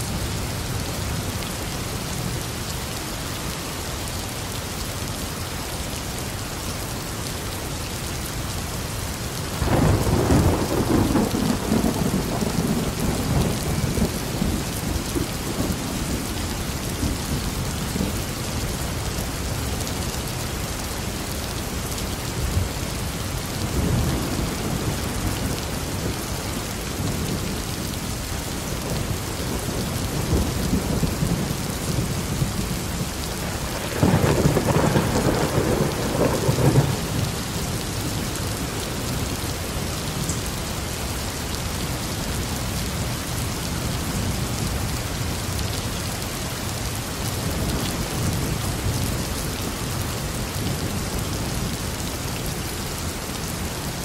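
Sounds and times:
steady rain falling: 0:00.0 - 0:54.0
thunder rumbling: 0:09.6 - 0:16.3, 0:29.0 - 0:38.2.

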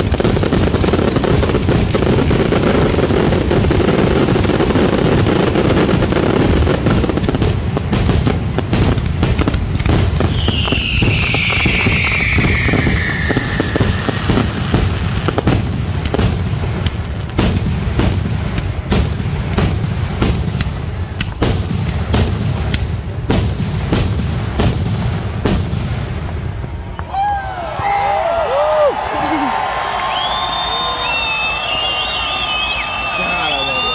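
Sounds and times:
fireworks bursting bangs: 0:00.0 - 0:27.1
descending whistle: 0:10.3 - 0:14.6, 0:29.8 - 0:33.9.

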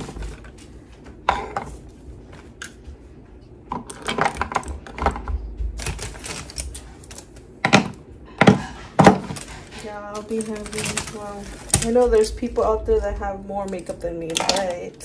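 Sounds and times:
makeup items clicking and clattering: 0:03.7 - 0:12.6, 0:13.5 - 0:15.0.

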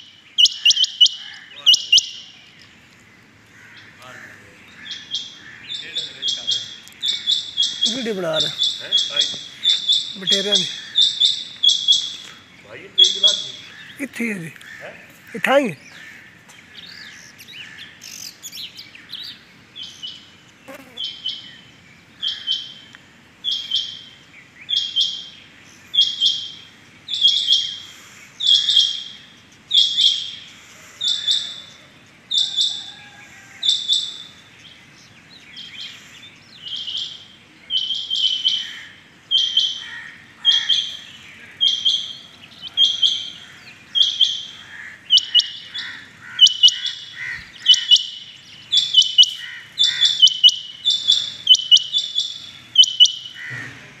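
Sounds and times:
quail double-note calls: 0:00.4 - 0:02.3, 0:04.9 - 0:14.0, 0:41.6 - 0:53.7.

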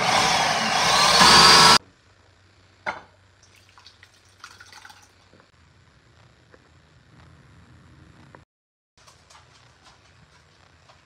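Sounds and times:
blender motor whine: 0:00.0 - 0:01.8.

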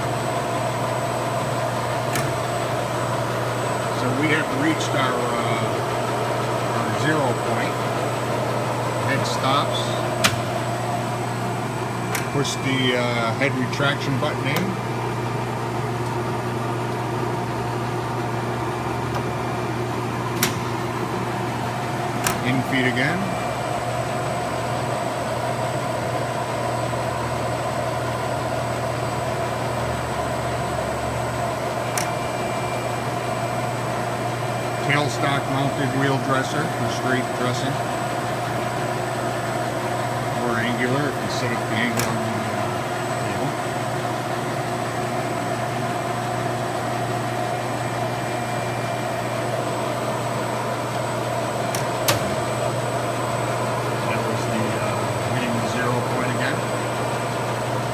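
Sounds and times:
grinder machine humming: 0:00.0 - 0:57.9
sharp click: 0:02.1 - 0:02.4, 0:10.2 - 0:10.6, 0:12.1 - 0:12.3, 0:20.3 - 0:20.7, 0:22.2 - 0:22.5, 0:31.9 - 0:32.2, 0:41.9 - 0:42.2, 0:51.7 - 0:52.4.

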